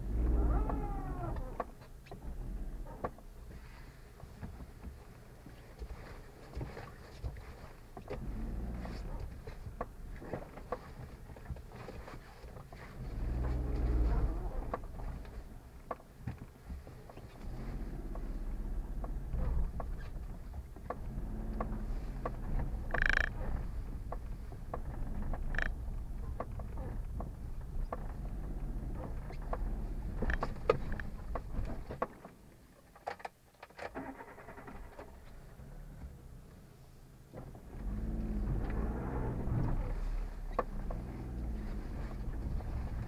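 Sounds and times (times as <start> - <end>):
car engine and road rumble: 0.0 - 43.0
knocks and rattles: 4.2 - 33.4.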